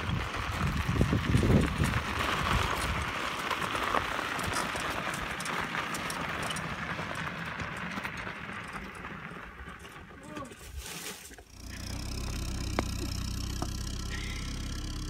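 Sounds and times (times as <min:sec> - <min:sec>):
cart tyres crunching on gravel: 0:00.0 - 0:15.0
low thumps: 0:11.5 - 0:15.0.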